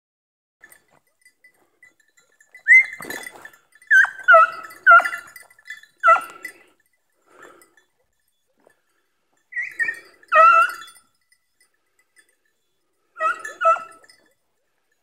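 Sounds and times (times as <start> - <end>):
dog barking high-pitched: 3.9 - 5.2, 6.0 - 6.4, 9.6 - 10.9, 13.2 - 14.1.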